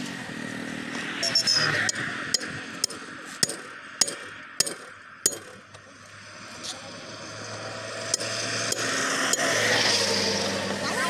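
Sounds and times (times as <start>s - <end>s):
sledgehammer striking steel: 1.9s - 5.6s, 8.1s - 9.5s.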